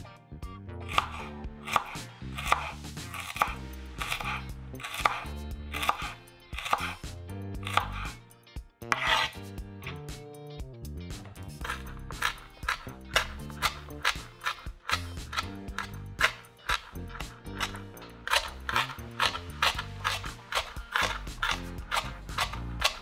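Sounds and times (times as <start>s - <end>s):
knife striking cutting board: 0.9s - 7.0s, 7.6s - 8.2s, 8.9s - 9.4s, 11.6s - 23.0s.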